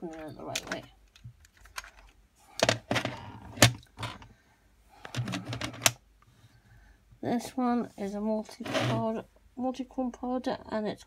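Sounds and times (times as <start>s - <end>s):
plastic box clicks and knocks: 2.6s - 4.3s.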